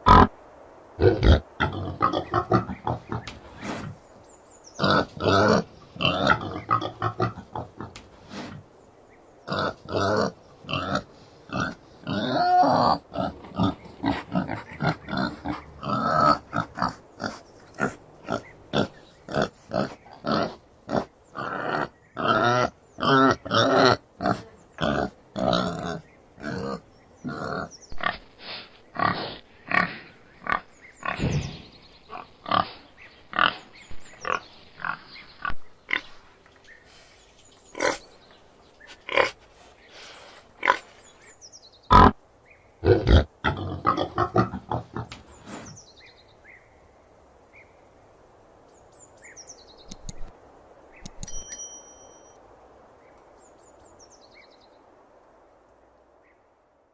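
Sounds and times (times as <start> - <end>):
boar grunting: 4.8 - 8.6, 9.4 - 36.2, 42.8 - 45.8.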